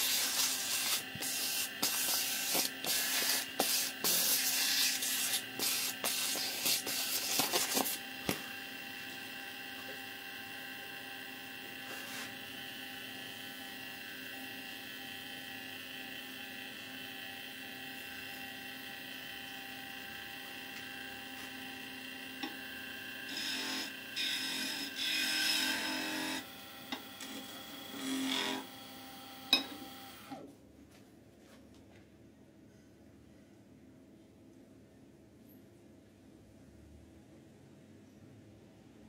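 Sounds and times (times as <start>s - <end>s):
rough rubbing on spinning wood: 0.0s - 8.0s
lathe motor hum: 0.0s - 30.4s.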